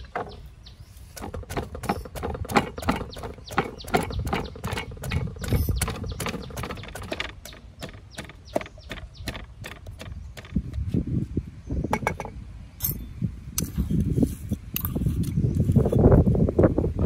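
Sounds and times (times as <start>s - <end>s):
wooden pestle pounding in mortar: 1.2s - 10.9s.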